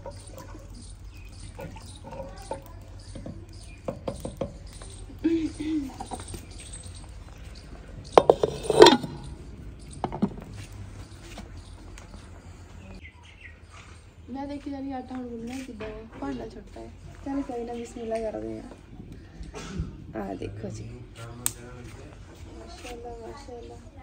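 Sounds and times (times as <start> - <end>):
wooden ladle scraping clay pot: 0.0 - 5.2, 5.9 - 11.6
clay lid clinking on pot: 8.1 - 10.4.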